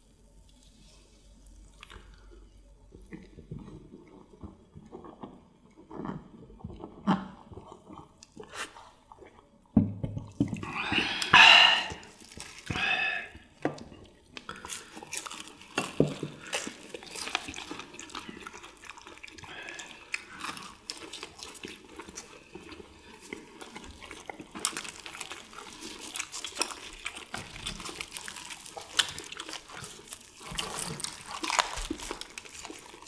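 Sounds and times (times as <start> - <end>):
crunchy chewing: 0.4 - 9.5, 10.3 - 33.0
satisfied ahh exhalations: 10.6 - 13.5.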